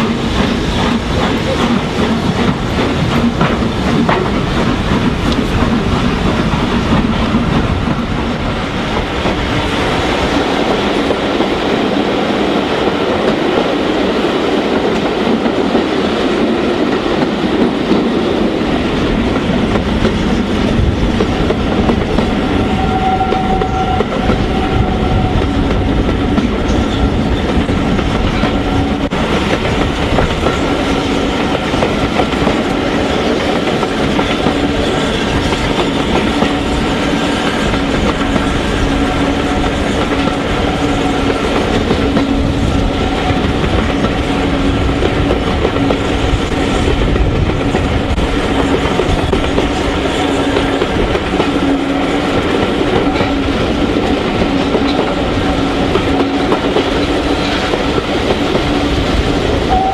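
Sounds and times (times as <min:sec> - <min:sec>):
wheels clacking over rail joints: 0:00.0 - 0:09.7
train rumble: 0:00.0 - 0:59.9.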